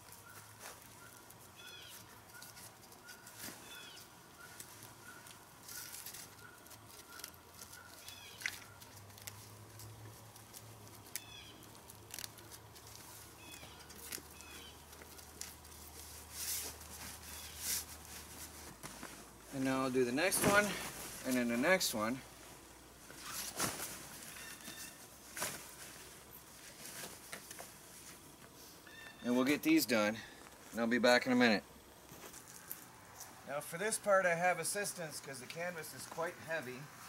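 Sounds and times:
bird chirping: 0:00.2 - 0:08.8, 0:11.2 - 0:11.7, 0:13.4 - 0:14.9
velcro rasps: 0:00.2 - 0:19.3, 0:23.1 - 0:25.8
canvas cover rustling: 0:12.1 - 0:28.3.

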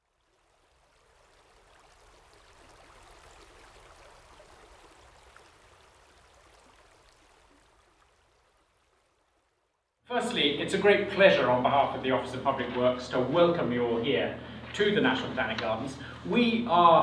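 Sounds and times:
faint flowing river water: 0:00.0 - 0:17.0.

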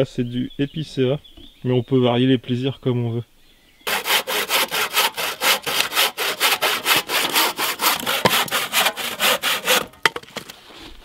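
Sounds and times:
hand saw cutting branch: 0:03.9 - 0:10.2.

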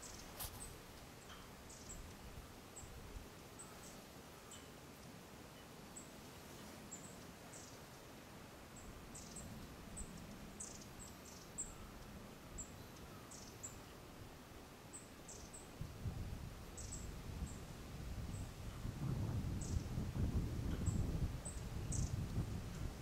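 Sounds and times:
small birds peeping: 0:00.0 - 0:02.2, 0:08.8 - 0:14.0, 0:20.7 - 0:22.9
soft steady hiss: 0:00.0 - 0:23.0.

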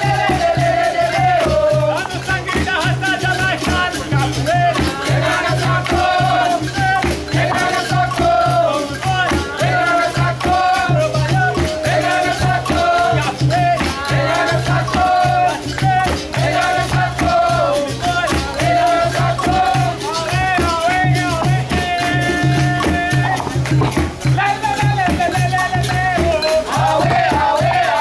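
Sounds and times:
group singing: 0:00.0 - 0:28.0
hand drum rhythm: 0:00.0 - 0:28.0
shakers: 0:00.0 - 0:28.0
berimbaus playing: 0:21.2 - 0:24.5.

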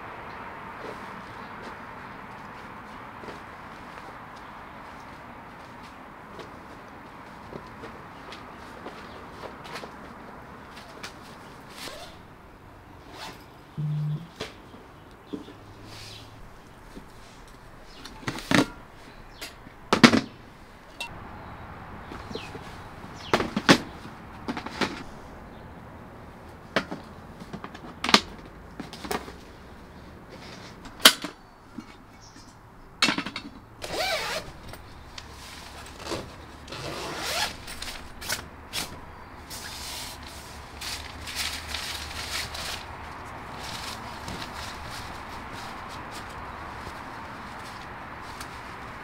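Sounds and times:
fabric and wrapping rustling: 0:00.8 - 0:12.3, 0:33.9 - 0:49.0.

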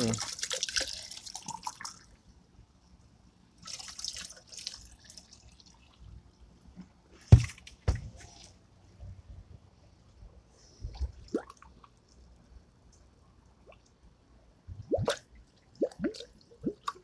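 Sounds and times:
liquid pouring and dripping: 0:00.0 - 0:02.2, 0:03.6 - 0:06.2.

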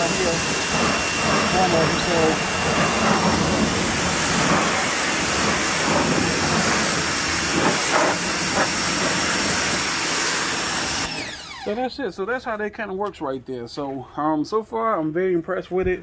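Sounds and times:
pressure washer spraying: 0:00.0 - 0:11.4.

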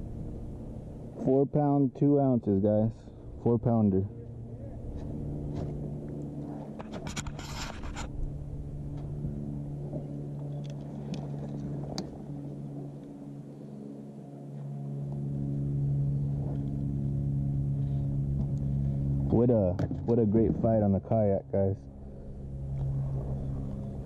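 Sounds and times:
steady low hum: 0:00.0 - 0:24.0
small clicks and scrapes: 0:05.0 - 0:08.3, 0:10.4 - 0:12.2.

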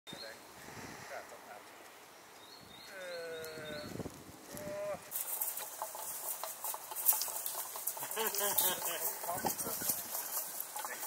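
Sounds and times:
footsteps in dry leaves: 0:03.9 - 0:11.0.

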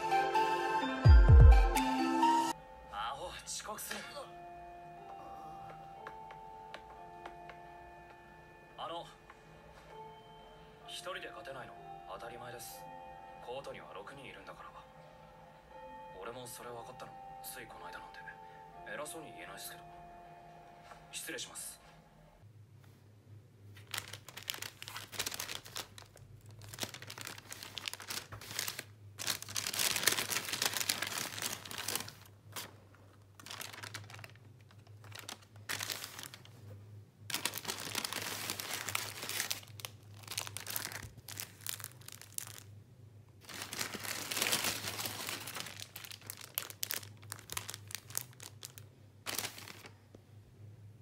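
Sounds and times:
paper bag crinkling and tearing: 0:23.7 - 0:36.6, 0:37.3 - 0:42.7, 0:43.4 - 0:50.0
plastic packaging rustling: 0:23.7 - 0:42.7, 0:43.4 - 0:50.1.

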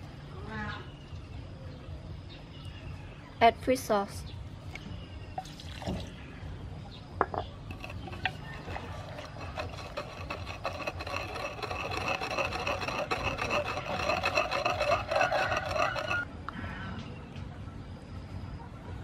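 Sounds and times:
wooden pestle grinding in mortar: 0:07.6 - 0:16.3.

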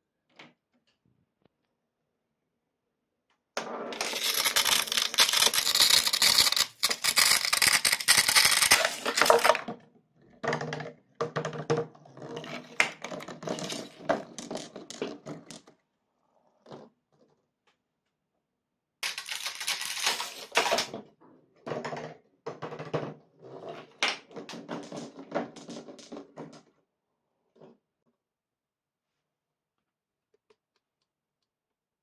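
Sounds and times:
marbles rolling on cardboard tracks: 0:03.6 - 0:15.8, 0:19.0 - 0:21.0, 0:21.6 - 0:26.8.

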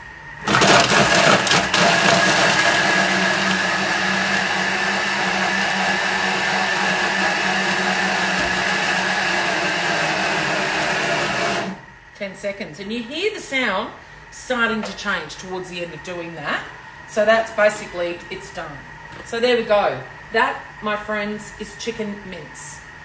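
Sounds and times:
food processor blade whirring: 0:00.4 - 0:11.8.

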